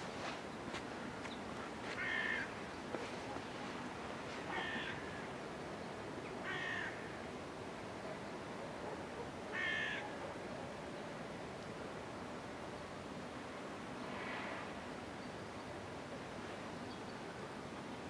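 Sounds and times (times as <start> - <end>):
bird calling: 4.5 - 5.3.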